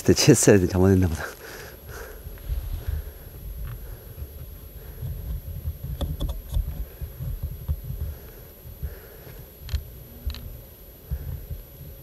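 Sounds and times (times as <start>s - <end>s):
low rumbling on microphone: 1.4s - 12.0s
faint clicks: 9.3s - 10.5s.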